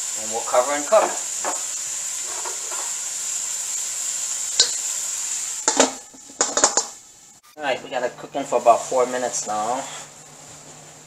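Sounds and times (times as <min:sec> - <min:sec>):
food sizzling in a wok: 0:00.0 - 0:11.0
metal clinking on wok: 0:04.6 - 0:04.9, 0:05.6 - 0:07.0
metal lid clanking onto wok: 0:04.6 - 0:04.9, 0:05.6 - 0:07.0.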